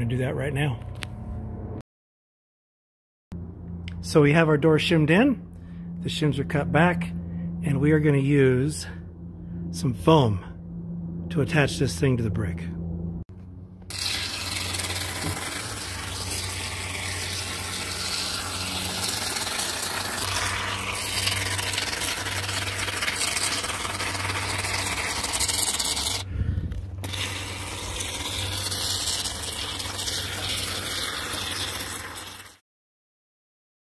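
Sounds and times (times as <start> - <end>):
aerosol foam can hissing: 13.9 - 26.3, 27.0 - 32.6.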